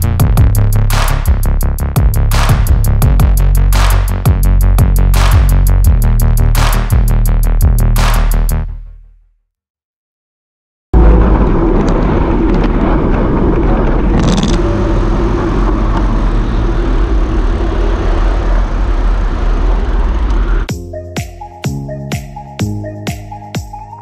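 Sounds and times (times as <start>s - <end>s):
wind rushing over microphone: 11.0s - 20.7s
cars passing on highway: 11.2s - 20.6s.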